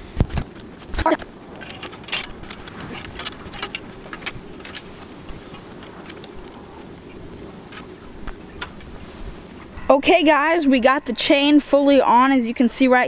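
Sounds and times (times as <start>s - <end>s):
steady background noise: 0.0s - 13.0s
bicycle chain links clicking: 1.6s - 7.0s.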